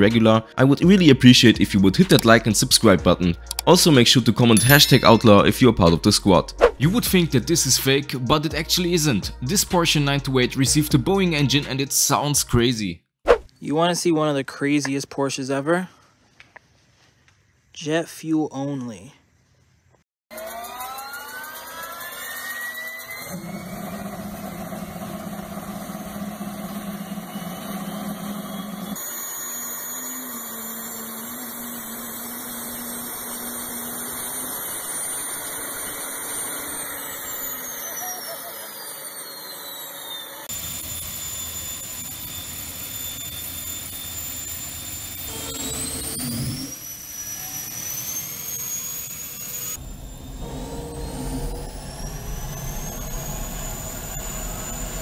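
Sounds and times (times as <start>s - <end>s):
jet turbine engine whining: 20.4s - 55.0s.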